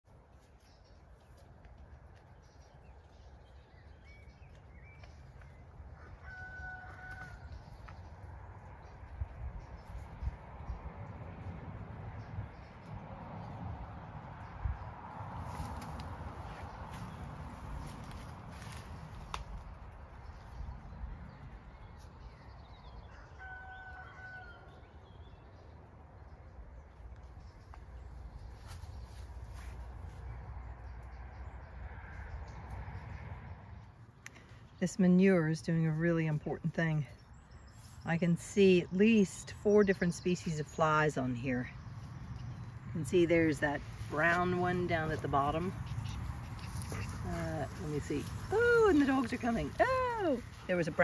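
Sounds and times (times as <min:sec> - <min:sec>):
low wind rumble on microphone: 0:01.8 - 0:34.0, 0:39.7 - 0:51.0
faint rooster crowing: 0:05.9 - 0:07.8, 0:23.0 - 0:25.0
steady low rumble: 0:07.4 - 0:23.1.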